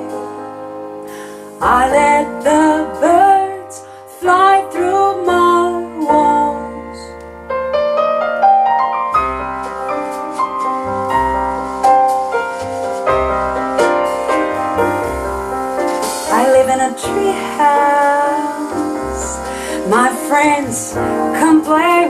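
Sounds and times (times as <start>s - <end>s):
woman singing: 0.0s - 0.5s, 1.6s - 7.2s, 16.3s - 22.0s
piano: 0.0s - 22.0s.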